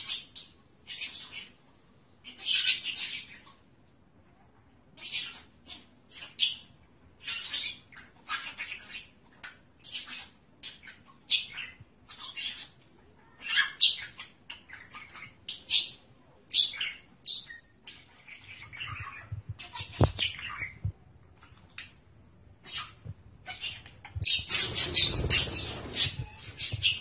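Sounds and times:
small animal chirping: 22.6s - 27.0s.

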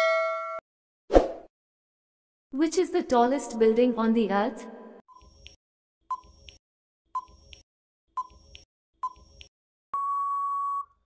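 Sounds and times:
long steady beep: 10.0s - 11.0s.

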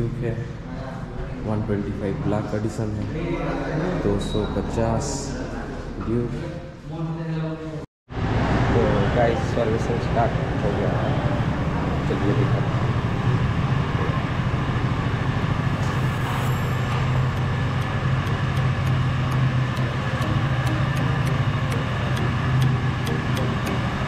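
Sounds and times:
low mechanical hum: 8.1s - 24.0s
light regular ticking: 16.0s - 24.0s.

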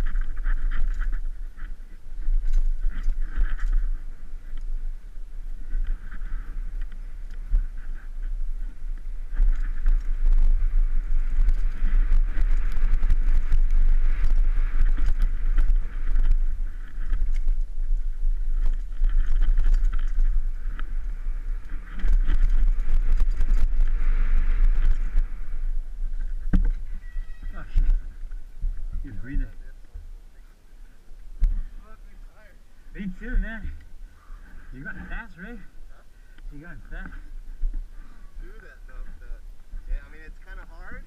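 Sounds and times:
bike rattling over bumps: 0.0s - 29.5s
tyres on loose dirt: 0.0s - 38.4s
wind buffeting microphone: 0.0s - 41.0s.

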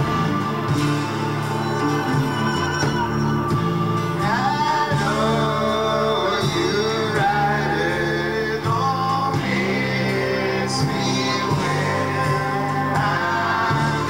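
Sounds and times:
acoustic guitars: 0.0s - 14.0s
people singing together: 3.9s - 14.0s.

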